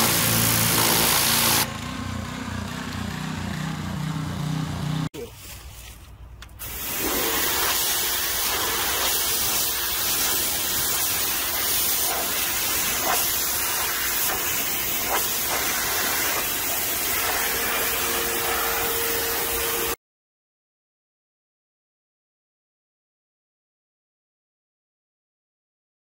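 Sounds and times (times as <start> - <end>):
pressure washer jet hissing on wood: 0.0 - 1.7, 6.6 - 20.0.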